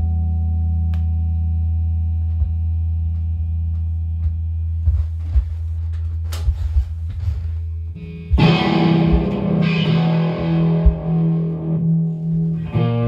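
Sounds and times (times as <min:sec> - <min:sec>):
guitar amplifier hum: 0:00.0 - 0:13.0
guitar chord ringing: 0:08.0 - 0:13.0
scratchy guitar strumming: 0:08.0 - 0:13.0.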